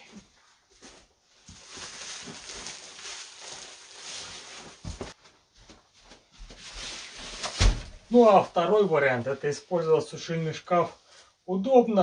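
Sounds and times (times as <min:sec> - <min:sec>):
plastic sacks rustling: 0:00.8 - 0:05.2, 0:06.5 - 0:08.9.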